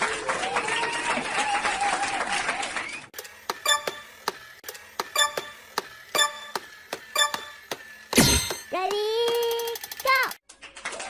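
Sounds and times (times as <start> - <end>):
clock-like ticking: 5.0 - 7.8.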